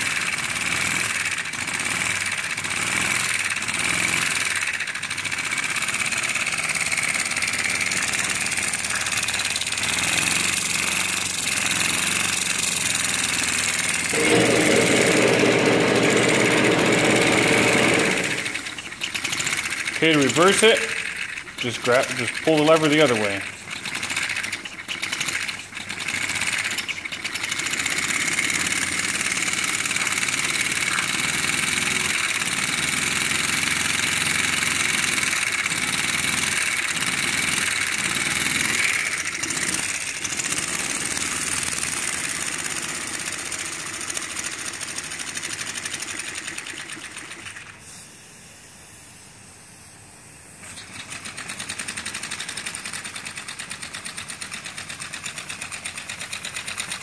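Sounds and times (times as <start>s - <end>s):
model steam engine chattering: 14.1s - 34.4s, 50.6s - 57.0s.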